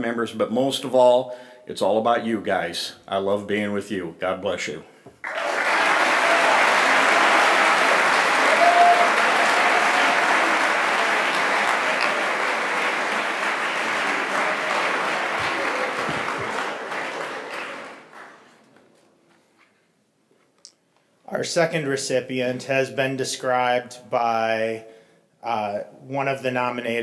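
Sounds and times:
audience applauding: 0:05.2 - 0:18.7.

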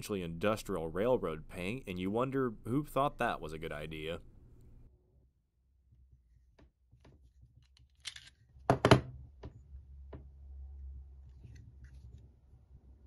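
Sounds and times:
pistol metal clicks and knocks: 0:07.6 - 0:09.0.

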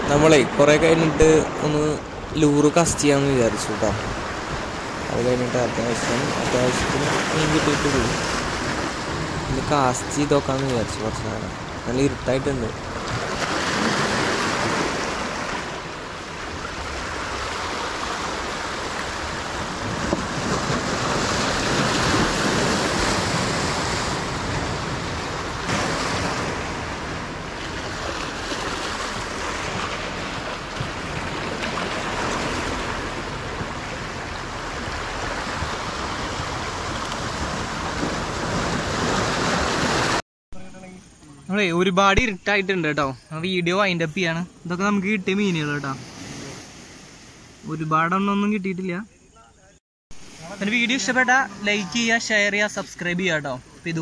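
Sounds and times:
waves washing against rocks: 0:00.0 - 0:40.2
wind: 0:00.0 - 0:54.0.

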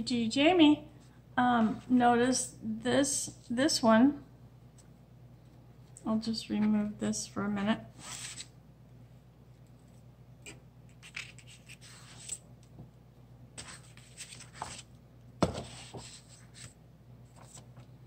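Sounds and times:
paper rustling and scraping: 0:08.0 - 0:08.5, 0:11.0 - 0:12.4, 0:13.6 - 0:17.9.

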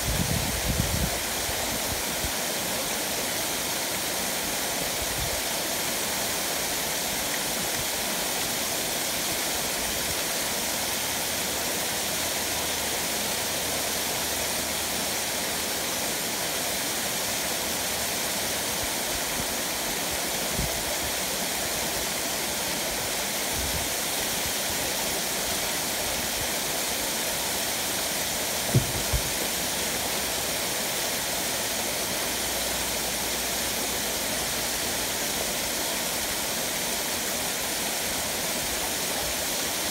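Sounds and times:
waterfall rushing: 0:00.0 - 0:39.9
low thumps: 0:28.7 - 0:29.4.

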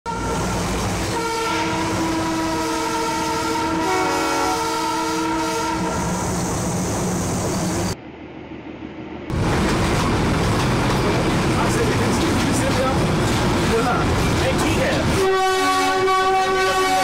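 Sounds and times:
train horn long note: 0:01.1 - 0:06.2, 0:15.1 - 0:17.0
second horn different pitch: 0:01.2 - 0:06.1, 0:15.2 - 0:17.0.

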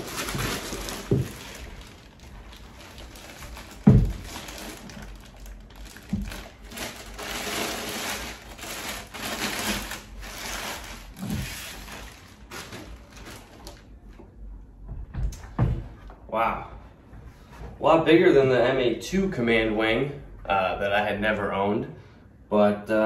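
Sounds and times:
plastic bag rustling and crinkling: 0:00.0 - 0:14.1
dull thumps: 0:03.7 - 0:04.4.

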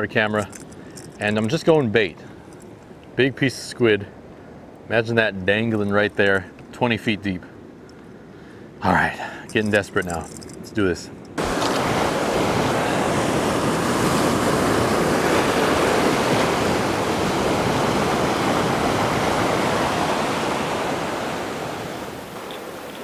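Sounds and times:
waves breaking over rocks: 0:09.5 - 0:23.0.

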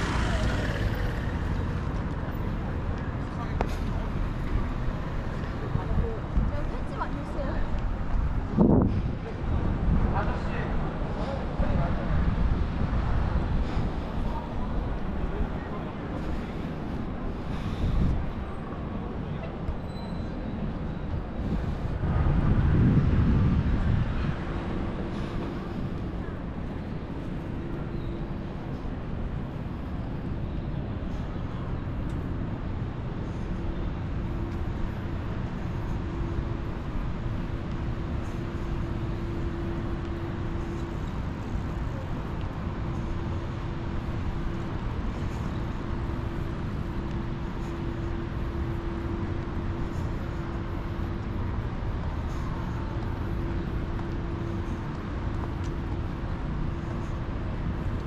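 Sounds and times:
road traffic rumble: 0:00.0 - 0:58.0
steady hum: 0:24.8 - 0:58.0.

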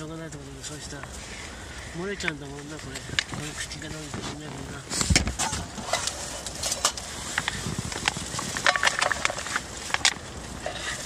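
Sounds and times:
plastic bottle crinkling and clicking: 0:02.2 - 0:11.0.

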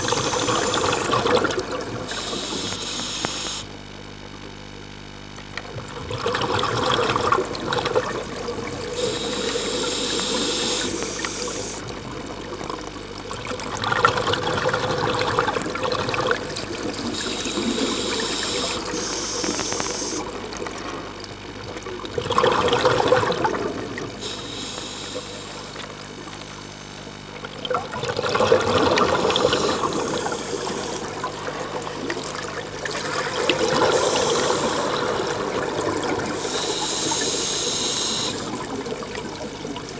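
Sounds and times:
hissing regulator inhale: 0:00.0 - 0:01.4, 0:02.1 - 0:03.8, 0:08.9 - 0:11.9, 0:17.0 - 0:20.3, 0:24.2 - 0:25.9, 0:29.0 - 0:31.3, 0:33.5 - 0:38.7
exhaled bubbles underwater: 0:00.0 - 0:39.9.

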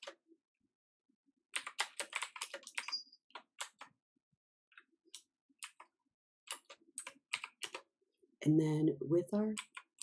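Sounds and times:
typing on a keyboard: 0:01.5 - 0:03.9, 0:05.1 - 0:05.9, 0:06.5 - 0:07.9, 0:09.6 - 0:10.0.

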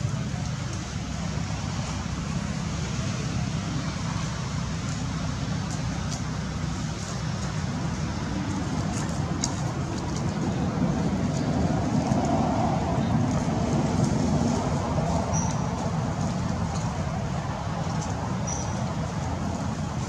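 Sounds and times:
low rumbling background noise: 0:00.0 - 0:20.0
faint high ticks and rustles: 0:04.2 - 0:20.0.

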